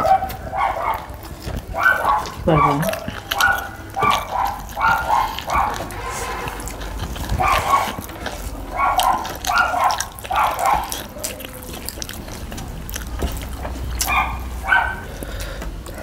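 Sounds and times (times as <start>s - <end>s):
dog barking: 0.0s - 8.1s, 8.7s - 12.1s, 14.0s - 15.1s.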